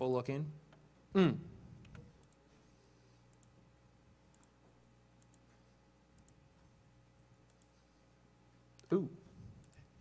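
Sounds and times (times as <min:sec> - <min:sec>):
steady low hum: 0:00.0 - 0:10.0
computer mouse clicks: 0:01.8 - 0:02.4, 0:03.3 - 0:03.6, 0:04.3 - 0:04.6, 0:05.2 - 0:05.6, 0:06.2 - 0:06.4, 0:07.4 - 0:07.8, 0:09.6 - 0:09.9.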